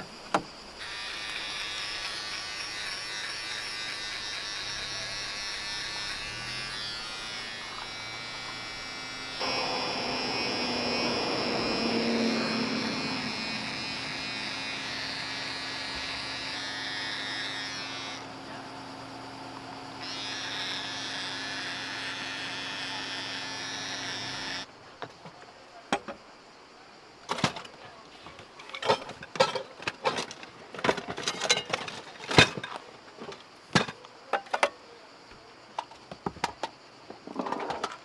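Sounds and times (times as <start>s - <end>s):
small electric motor buzzing: 0.8s - 24.7s.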